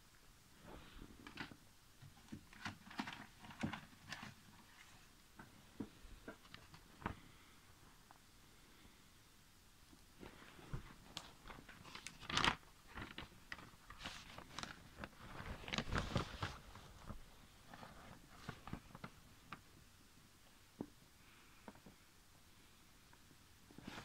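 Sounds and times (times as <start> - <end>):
paper record sleeves rustling: 10.2 - 19.7, 23.7 - 24.0.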